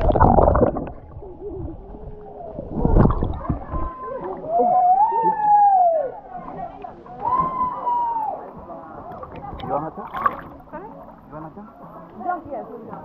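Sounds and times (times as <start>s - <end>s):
water churning and bubbling: 0.0s - 5.0s, 8.8s - 11.4s.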